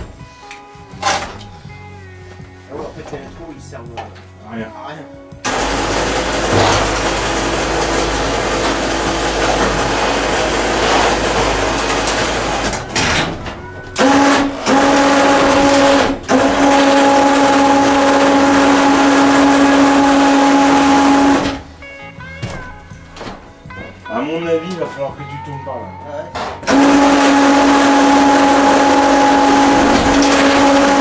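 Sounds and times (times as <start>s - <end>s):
electric motor whining: 14.0s - 21.7s, 26.6s - 31.0s.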